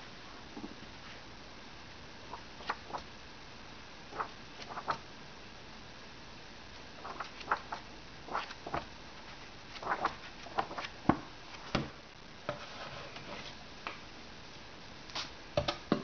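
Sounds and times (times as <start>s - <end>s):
book pages turning: 2.3s - 3.1s, 4.2s - 5.0s, 7.0s - 11.8s.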